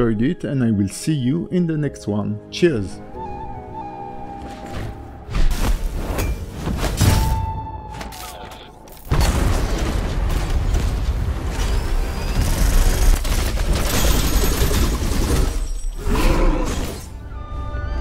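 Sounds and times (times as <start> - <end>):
mechanical effects: 11.4 - 15.6.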